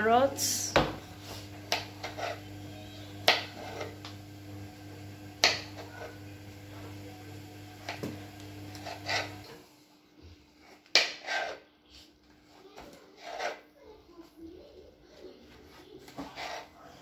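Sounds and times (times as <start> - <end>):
knife chopping on wooden board: 1.7 - 2.2, 5.4 - 5.8.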